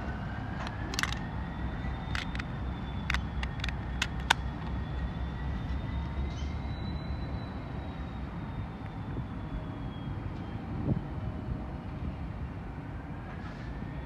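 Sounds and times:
diesel locomotive engine rumble: 0:00.0 - 0:14.0
sharp clicks: 0:00.6 - 0:01.3, 0:02.0 - 0:04.8.

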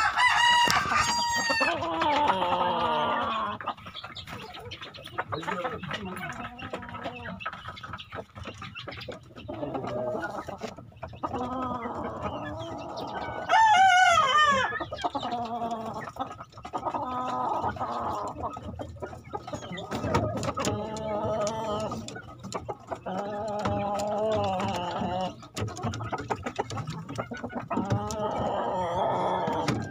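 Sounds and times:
roosters crowing: 0:00.0 - 0:03.6, 0:11.3 - 0:16.0, 0:23.0 - 0:25.5, 0:27.8 - 0:29.9
roosters clucking: 0:00.0 - 0:29.9.

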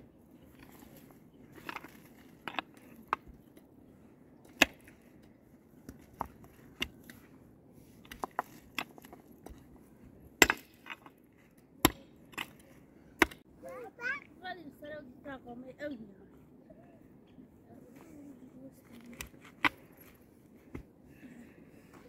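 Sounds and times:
digging tool striking stony ground: 0:04.4 - 0:05.2, 0:08.0 - 0:09.7, 0:10.3 - 0:13.5.

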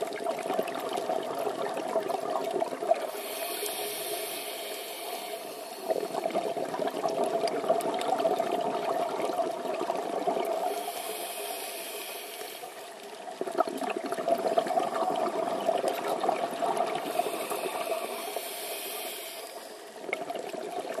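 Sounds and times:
regulator hissing inhalation: 0:03.1 - 0:06.3, 0:10.6 - 0:13.0, 0:17.0 - 0:19.9
bubbling exhalations underwater: 0:05.8 - 0:10.8, 0:13.3 - 0:18.1.

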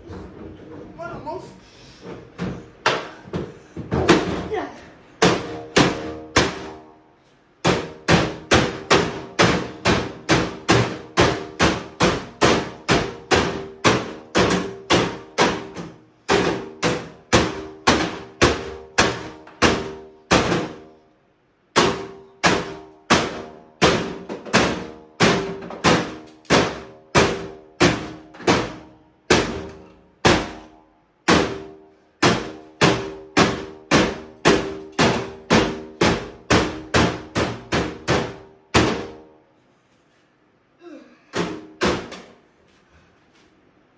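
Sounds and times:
hammer striking hard casing: 0:05.2 - 0:07.0, 0:07.6 - 0:20.8, 0:21.7 - 0:39.3.

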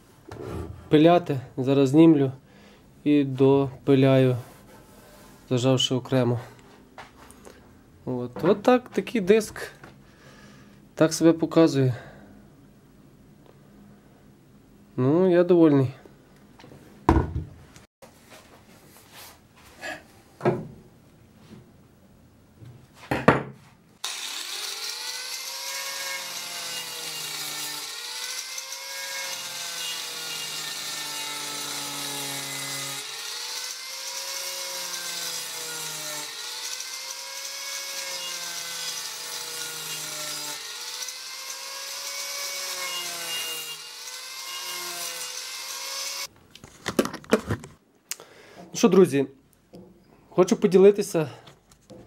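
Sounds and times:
angle grinder cutting wood: 0:24.0 - 0:46.3.

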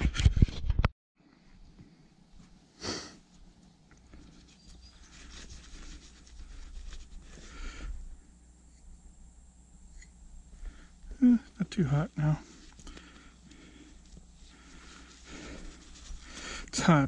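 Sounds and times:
person breathing hard: 0:02.8 - 0:03.2, 0:06.4 - 0:08.4, 0:10.5 - 0:11.5, 0:12.4 - 0:16.8.

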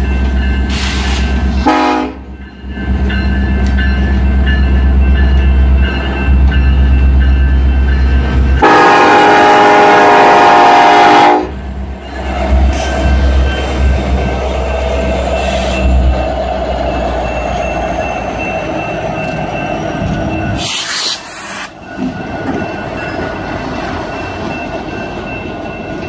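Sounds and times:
crossing warning bell: 0:00.0 - 0:26.0
diesel locomotive engine rumble: 0:00.0 - 0:26.0
train horn blast: 0:01.6 - 0:02.3, 0:08.6 - 0:11.6.

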